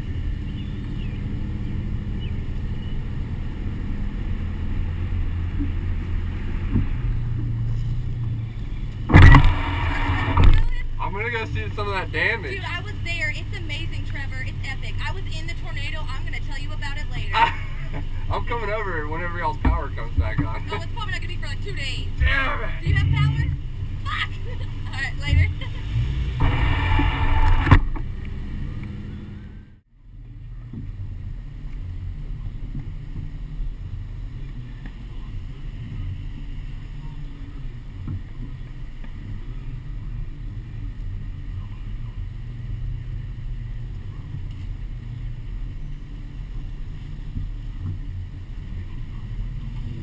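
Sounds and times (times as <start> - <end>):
wind and road noise rumble: 0.0 - 50.0.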